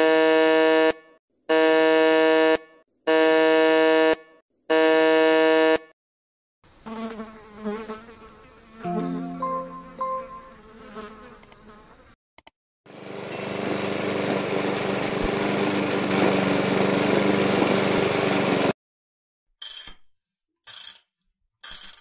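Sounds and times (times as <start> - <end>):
electric buzzer sounding: 0.0 - 5.9
irregular sound with shifting tones: 8.9 - 10.6.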